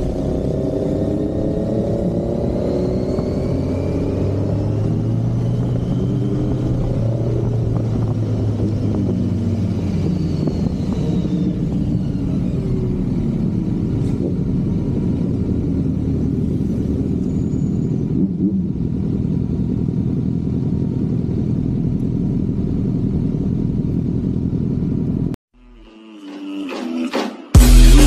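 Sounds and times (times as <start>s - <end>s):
road noise rushing: 0.0s - 20.5s
motorcycle engine running: 0.0s - 25.3s.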